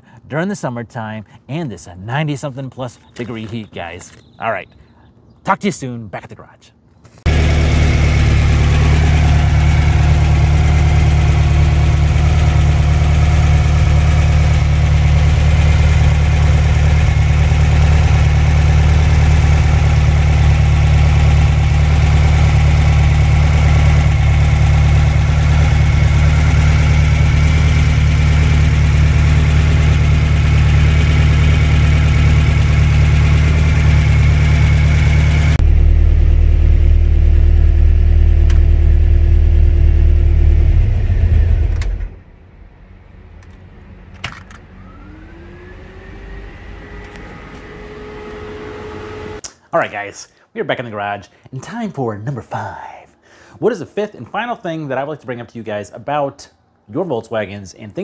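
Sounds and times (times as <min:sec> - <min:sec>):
car engine droning: 0:07.3 - 0:49.4.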